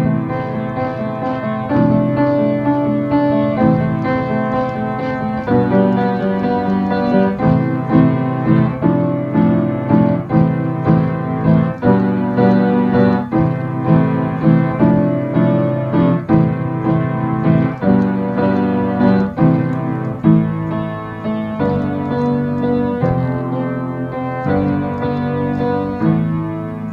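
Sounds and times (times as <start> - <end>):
piano playing chords and melody: 0.0 - 26.9.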